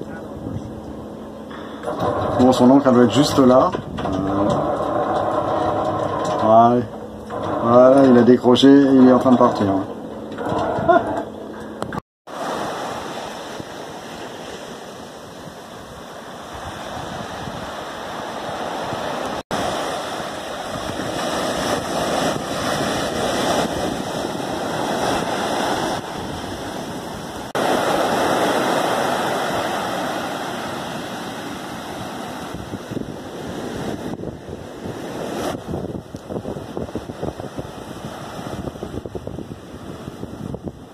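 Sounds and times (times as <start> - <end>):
surf breaking on beach: 12.3 - 40.9.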